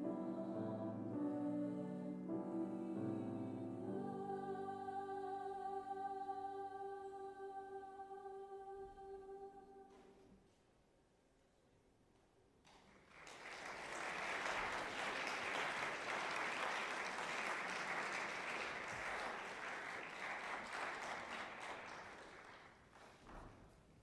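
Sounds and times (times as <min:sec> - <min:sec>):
audience applauding: 0:12.9 - 0:22.9.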